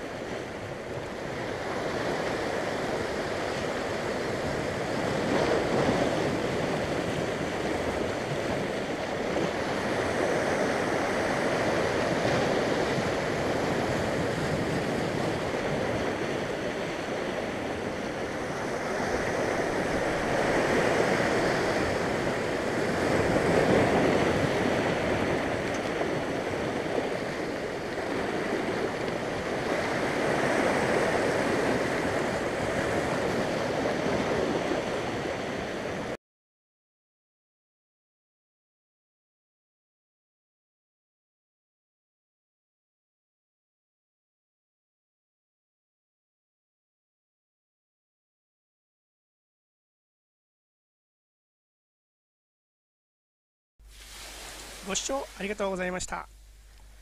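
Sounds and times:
surf breaking over rocks: 0.0s - 36.1s, 53.9s - 57.0s.

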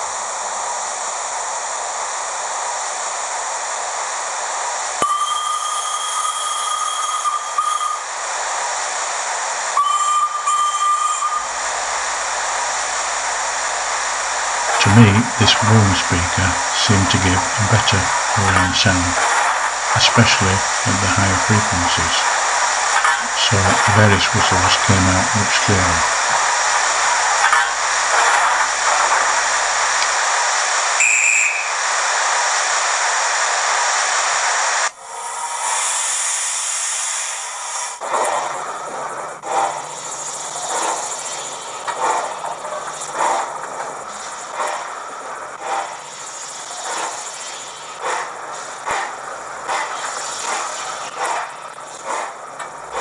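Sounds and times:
steam hissing: 0.0s - 53.0s
train whistle toot: 5.0s - 8.1s, 9.8s - 11.6s, 31.0s - 31.8s.

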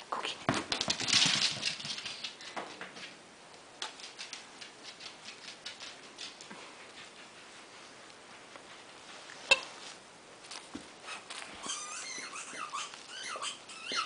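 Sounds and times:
dog claws clicking on hard floor: 0.5s - 3.2s, 3.8s - 7.1s.

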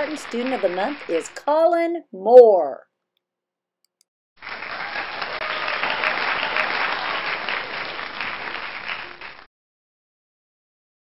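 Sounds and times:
applause: 0.0s - 1.4s, 4.4s - 9.5s.

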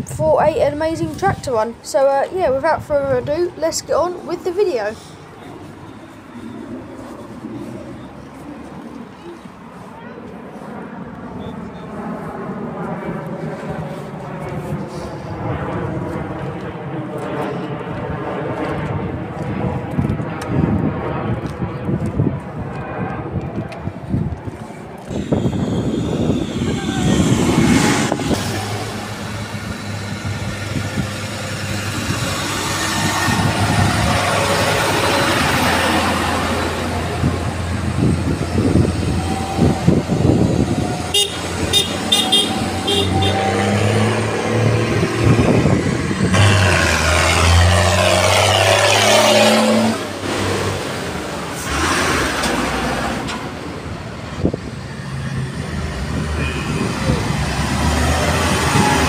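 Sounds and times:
tractor engines running: 0.0s - 10.0s, 24.3s - 59.0s
short horn toots: 41.1s - 43.7s.

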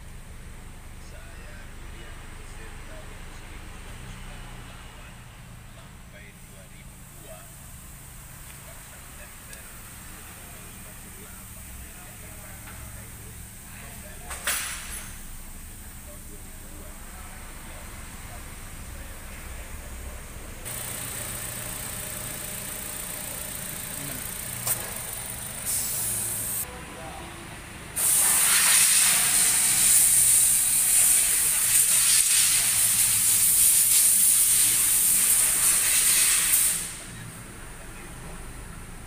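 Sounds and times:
short burst of air: 20.6s - 26.6s, 28.0s - 37.0s
pressurized air hissing: 20.6s - 26.7s, 28.0s - 37.0s.

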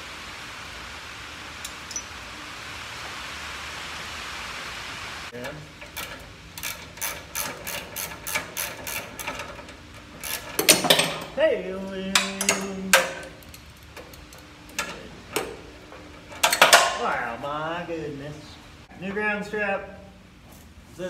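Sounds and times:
ratchet wrench clicking: 5.8s - 11.2s.

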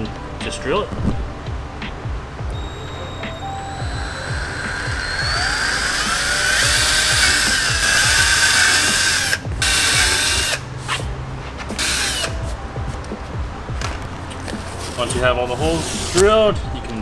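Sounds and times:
cordless drill drilling plastic: 2.6s - 10.6s, 11.8s - 12.4s.

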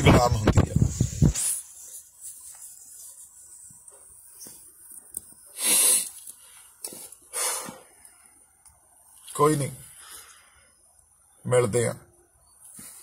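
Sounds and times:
man sniffing: 5.5s - 6.2s, 6.9s - 8.0s.

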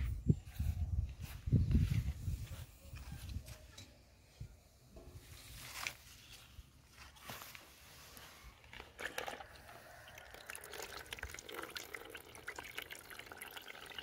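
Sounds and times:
liquid dripping into a bowl: 10.1s - 14.0s.

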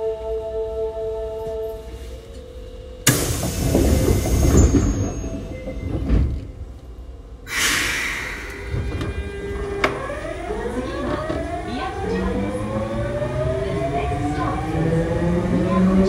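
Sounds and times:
train doors sliding with hiss: 3.0s - 5.5s, 7.5s - 9.9s.

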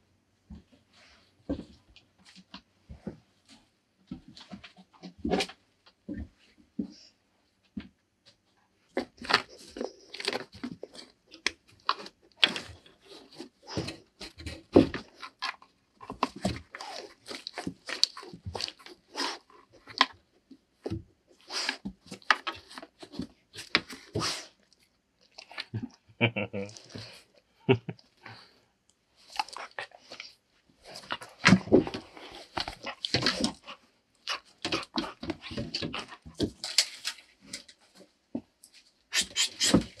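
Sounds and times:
dog chewing and crunching: 15.0s - 20.1s, 30.9s - 37.0s.

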